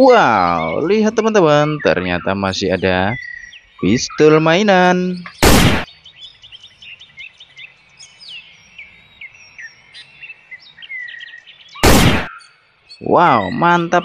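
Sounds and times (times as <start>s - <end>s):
small birds chirping: 0.0s - 14.0s
loud burst of noise: 11.8s - 12.3s.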